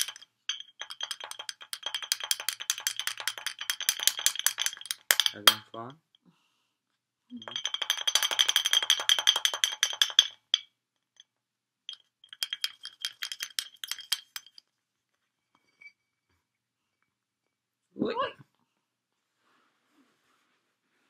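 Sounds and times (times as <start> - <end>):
beak tapping on glass bottle: 0.0 - 5.9, 7.4 - 10.6, 11.9 - 14.6.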